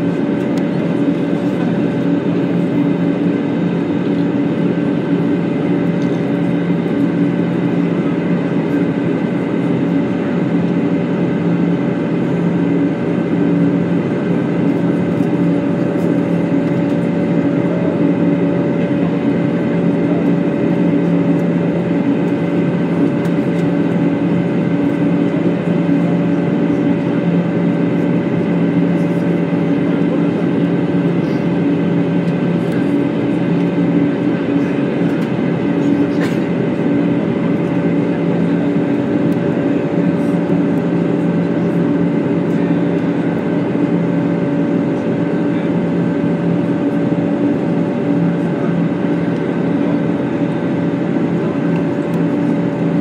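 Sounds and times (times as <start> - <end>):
jet engines humming: 0.0 - 53.0.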